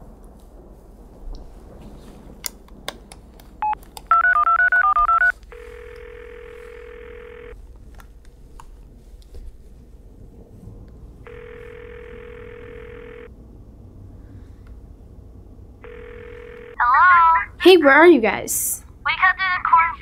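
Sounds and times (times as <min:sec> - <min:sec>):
touch-tone beeps: 0:03.6 - 0:05.3
phone dialing clicks: 0:03.6 - 0:07.6, 0:11.3 - 0:13.3
phone ringback tone: 0:03.6 - 0:07.6, 0:11.3 - 0:13.3, 0:15.8 - 0:16.9.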